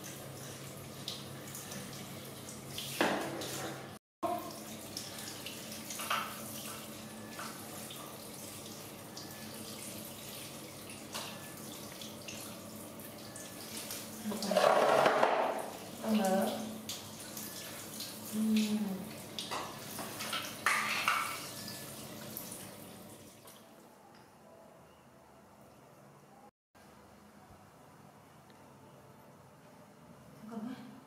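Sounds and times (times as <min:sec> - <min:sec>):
water splashing on tiled floor: 0:13.6 - 0:23.6.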